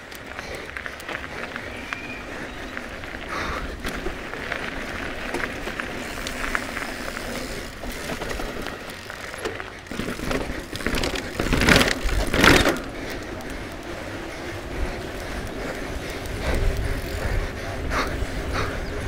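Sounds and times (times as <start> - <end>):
bike tyres rolling over gravel: 0.0 - 19.0
bike clattering down stone steps: 3.1 - 16.2.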